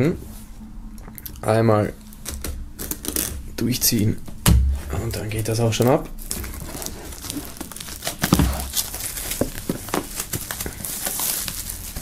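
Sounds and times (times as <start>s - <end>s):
dull thud: 4.4s - 4.9s
shrink-wrap film crinkling: 5.8s - 12.0s.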